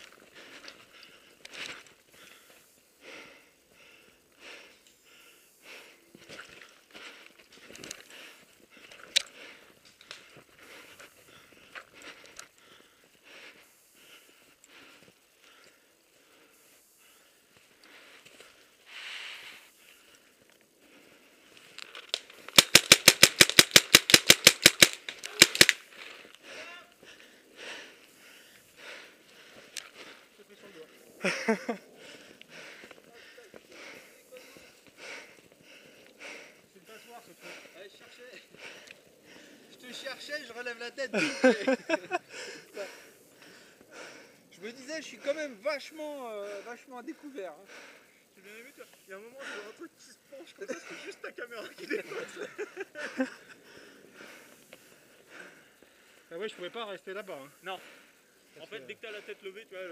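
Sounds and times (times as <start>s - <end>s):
person breathing hard: 0.0s - 39.8s, 41.2s - 44.5s, 47.5s - 51.2s, 52.0s - 56.7s, 57.4s - 58.6s
paintball marker firing: 22.2s - 25.8s.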